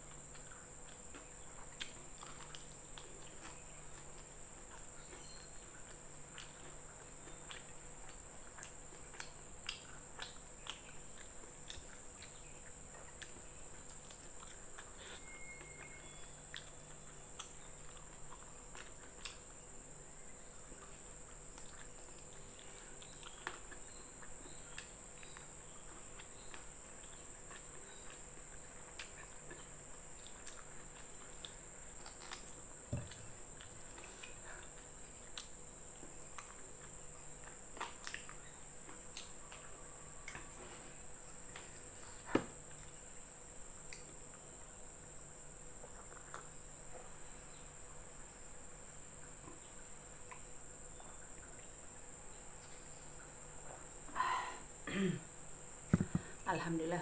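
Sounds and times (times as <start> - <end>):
person eating by hand: 0.0 - 56.4
high-pitched hiss: 54.0 - 55.3.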